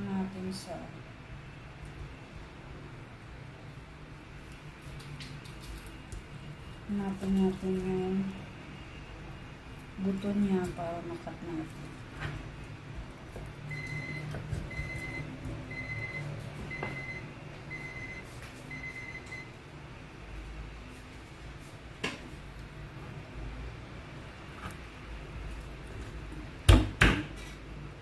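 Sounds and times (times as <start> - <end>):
short high appliance beeps: 13.7 - 19.5.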